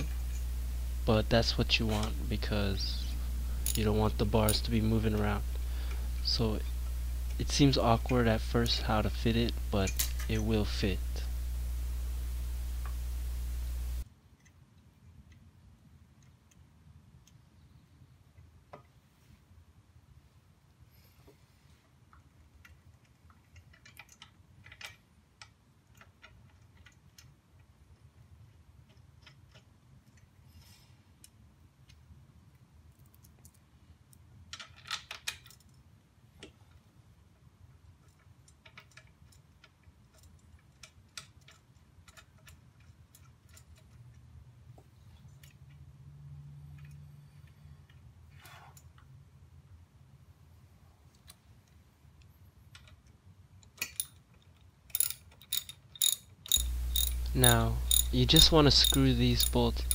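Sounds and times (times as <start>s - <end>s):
low steady hum: 0.0s - 14.1s, 56.5s - 59.9s
metallic clicks and taps: 52.7s - 59.9s.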